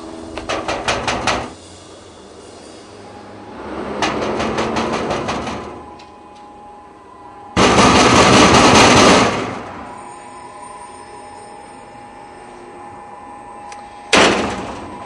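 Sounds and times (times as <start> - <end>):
loud harsh clattering: 0.4 - 1.6, 3.6 - 5.8, 7.6 - 9.6, 14.1 - 14.9
rapid rattling knocks: 0.4 - 1.6, 4.0 - 5.8.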